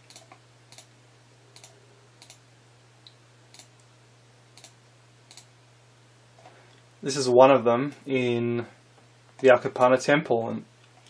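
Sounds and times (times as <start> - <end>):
computer mouse clicks: 0.0 - 0.9, 1.6 - 2.4, 3.5 - 3.7, 4.6 - 5.5
low steady hum: 0.0 - 11.0.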